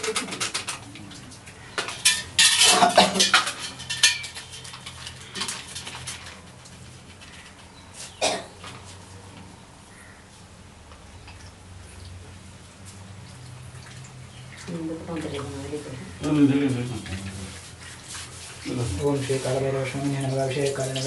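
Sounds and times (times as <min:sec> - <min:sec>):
metal vessels clinking: 0:00.0 - 0:07.6.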